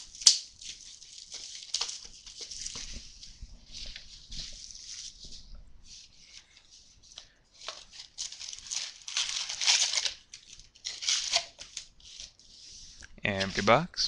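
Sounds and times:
plastic and cardboard tearing: 7.8s - 12.3s.

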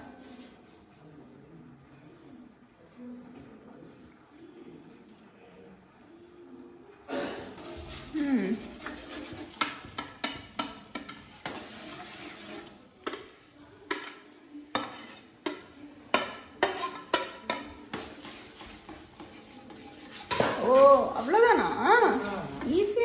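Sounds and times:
spatula scraping a steel pan: 7.6s - 23.0s
spatula knocking against pan: 9.5s - 11.6s.

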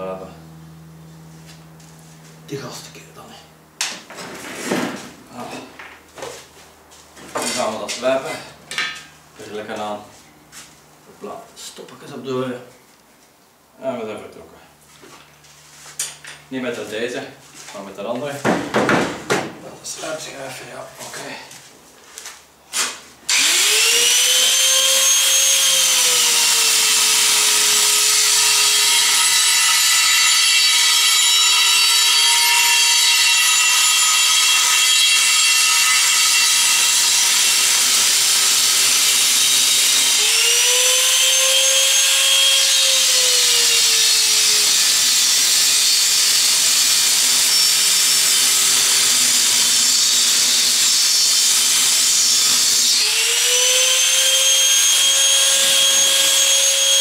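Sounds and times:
angle grinder cutting steel: 23.3s - 57.0s.

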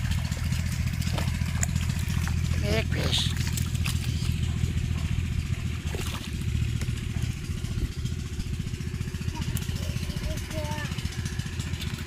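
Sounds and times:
water splashing: 0.0s - 4.9s, 5.5s - 7.9s
small engine throbbing: 0.0s - 12.0s.

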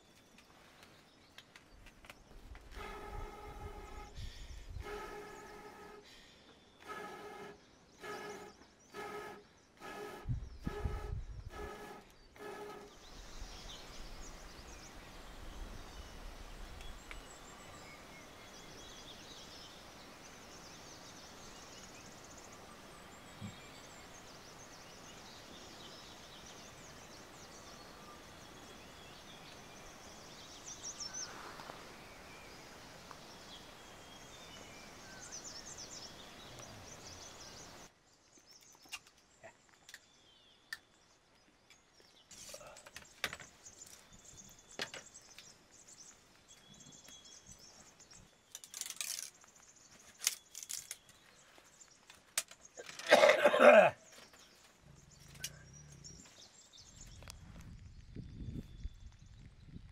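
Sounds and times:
short bird calls: 2.7s - 13.5s.

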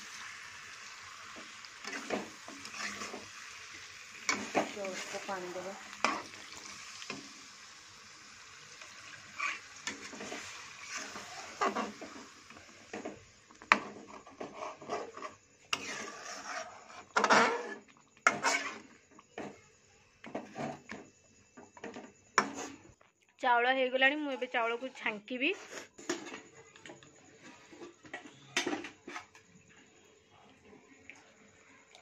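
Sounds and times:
faint frying sizzle: 0.0s - 19.6s
spatula scraping metal pan: 1.3s - 7.2s, 9.0s - 12.3s, 12.9s - 18.9s, 20.3s - 21.0s, 24.8s - 26.6s, 27.4s - 29.4s.

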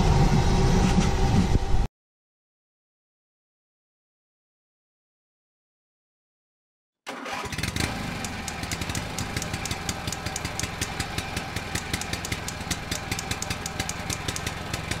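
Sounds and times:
engine idling with clicking clatter: 7.3s - 15.0s.

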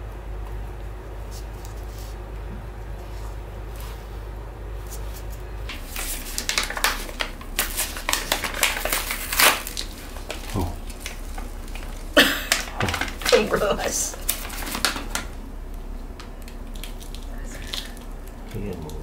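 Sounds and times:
paper packet crinkling: 4.8s - 15.4s, 16.2s - 19.0s.

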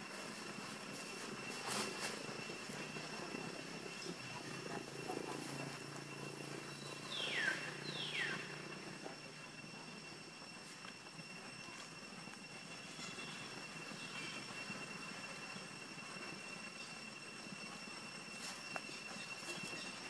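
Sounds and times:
low distant drone: 0.0s - 20.0s
steady high tone: 0.0s - 20.0s
falling whistled calls: 6.3s - 8.9s.

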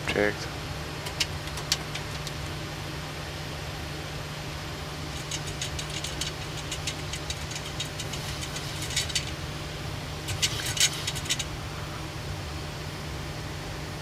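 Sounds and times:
aircraft cockpit hum: 0.0s - 14.0s
short sharp clicks and rattles: 5.1s - 9.4s, 10.2s - 11.5s.

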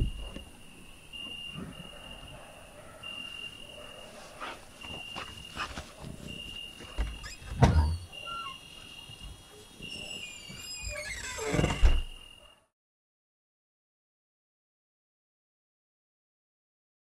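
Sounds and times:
cricket trilling: 0.0s - 12.5s.

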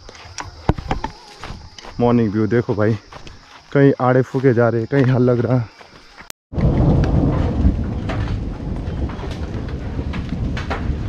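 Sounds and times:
low thunder rumble: 6.5s - 11.0s.

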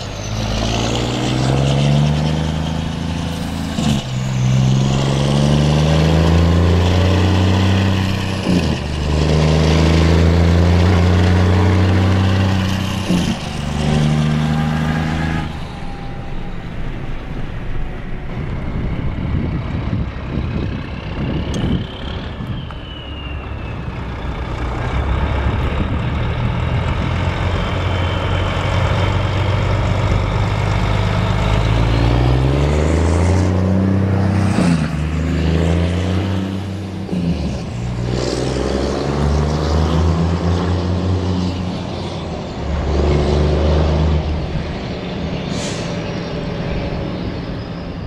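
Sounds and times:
truck engine accelerating: 0.0s - 48.0s
short air hisses: 45.5s - 46.1s.

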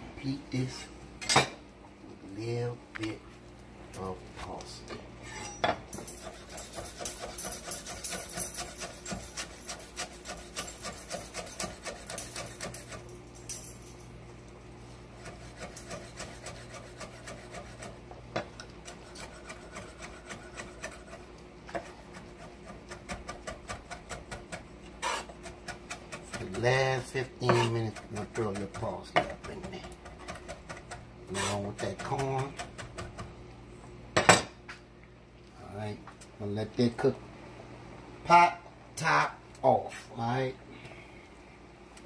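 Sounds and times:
knife chopping on wooden board: 27.4s - 33.3s.

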